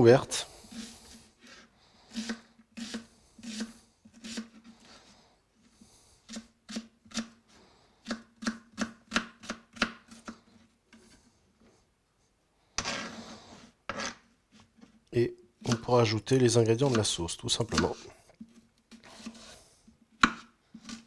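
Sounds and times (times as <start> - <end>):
knife chopping on plastic board: 8.0 - 10.4, 15.6 - 15.9, 17.7 - 18.0, 20.2 - 21.0.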